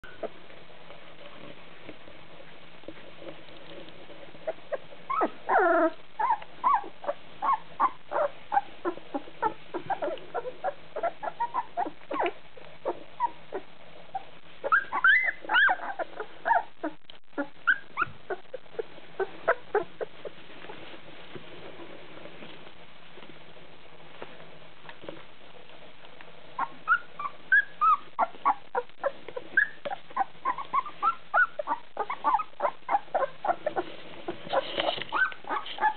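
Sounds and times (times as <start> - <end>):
puppies whimpering and yipping: 0.0 - 0.4, 4.4 - 20.4, 26.6 - 35.9.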